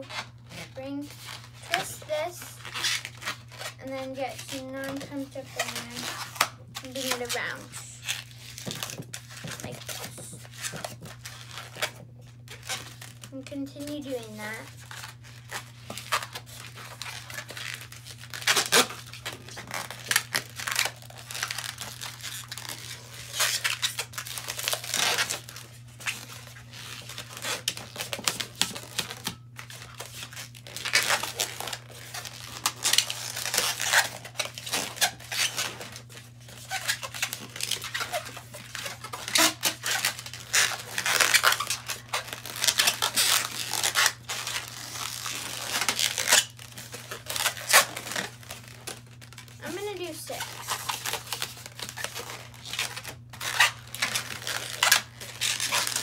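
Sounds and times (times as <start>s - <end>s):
balloon rubbing and creaking: 0.0s - 56.0s.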